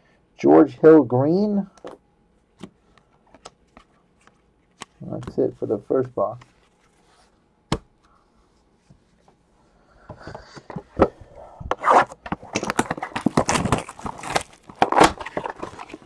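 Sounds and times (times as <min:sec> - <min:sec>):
plastic shrink wrap crinkling: 0:12.5 - 0:16.0.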